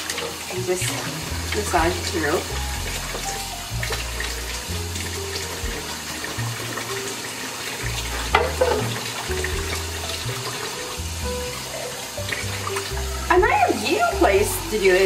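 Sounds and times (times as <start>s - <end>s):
faucet running into sink: 0.0s - 15.0s
background music with bass: 0.7s - 7.2s, 7.8s - 15.0s
short knock: 8.3s - 8.9s.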